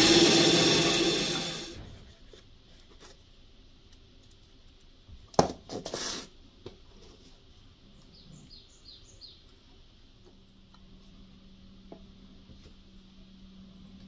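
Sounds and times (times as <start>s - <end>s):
rustling and scraping on workbench: 5.4s - 7.4s
small bird chirping: 7.9s - 9.6s.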